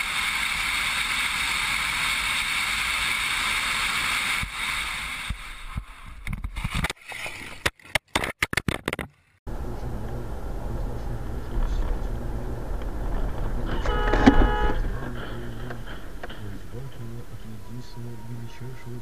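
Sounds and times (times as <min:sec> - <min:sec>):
car road and wind noise: 0:09.5 - 0:19.0.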